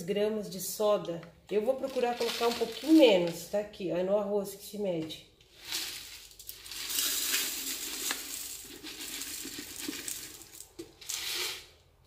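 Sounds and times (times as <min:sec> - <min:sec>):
dry grains pouring rattle: 0:01.9 - 0:03.0, 0:05.5 - 0:11.7.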